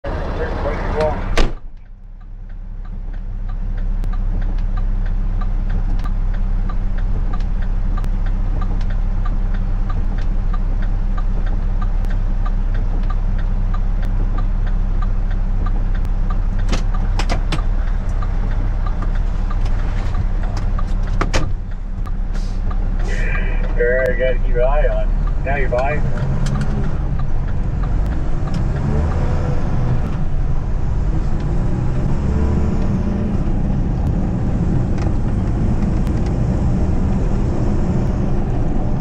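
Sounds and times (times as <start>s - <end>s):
diesel truck engine running: 0.0s - 39.0s
sharp clicks: 1.6s - 32.1s
light regular ticking: 1.7s - 39.0s.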